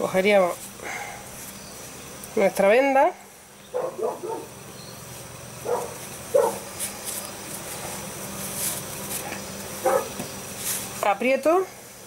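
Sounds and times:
paper and gauze rustling: 5.8 - 11.0.

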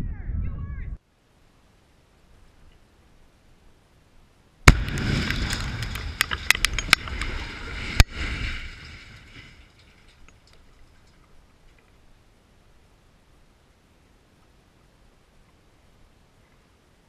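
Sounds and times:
sharp crack: 4.6 - 11.2
rumbling noise: 4.6 - 11.6
explosive blast: 4.7 - 9.3
debris clicking down: 4.7 - 12.0.

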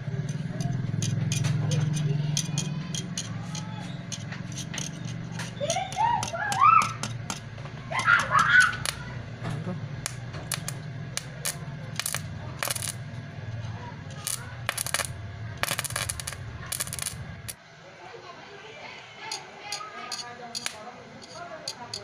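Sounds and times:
arc welder humming: 0.0 - 17.6
welding arc crackling: 8.2 - 9.1, 10.0 - 13.2, 14.1 - 17.6.

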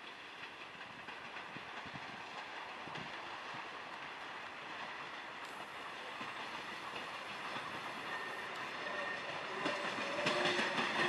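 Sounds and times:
train rumbling and clattering: 0.0 - 11.0
high metallic wheel squeal: 8.0 - 11.0.

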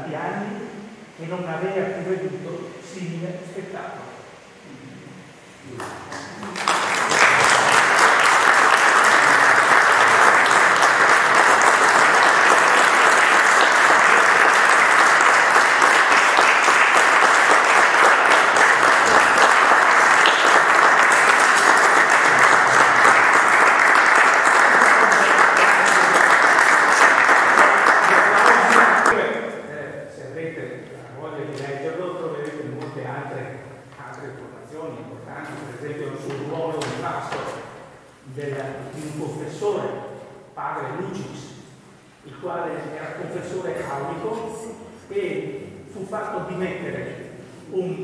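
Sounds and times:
audience applauding: 5.8 - 29.2.

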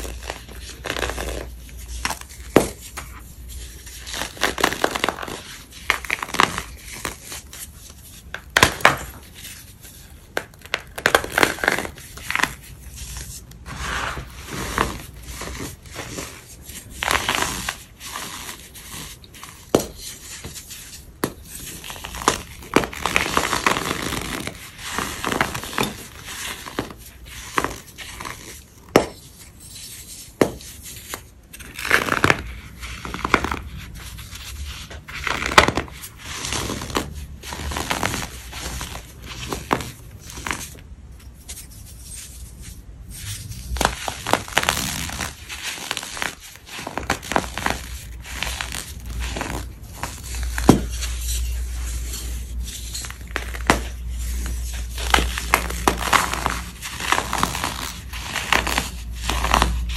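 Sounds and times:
powder blocks crunching: 43.7 - 59.9.

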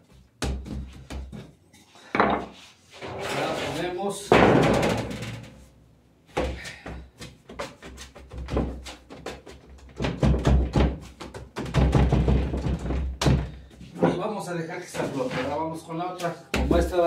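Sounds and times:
dough thumping on board: 7.2 - 13.6.

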